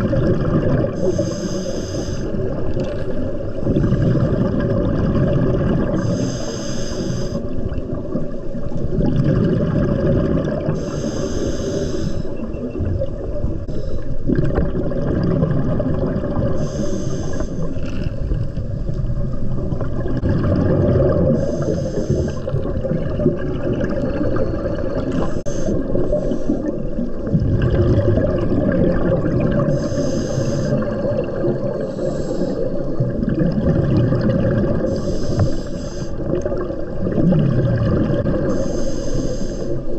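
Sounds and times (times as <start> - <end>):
exhaled bubbles rumbling: 0.0 - 1.6, 2.2 - 6.4, 7.2 - 38.9
scuba regulator hissing inhale: 1.0 - 2.6, 5.9 - 7.6, 10.7 - 12.5, 13.6 - 14.2, 16.6 - 17.9, 21.3 - 22.7, 25.1 - 27.0, 29.6 - 31.1, 31.7 - 33.0, 34.8 - 36.4, 38.4 - 39.9.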